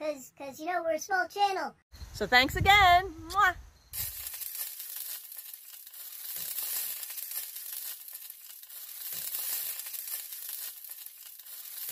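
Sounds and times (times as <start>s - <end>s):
crackling sizzling hiss: 3.9s - 11.9s.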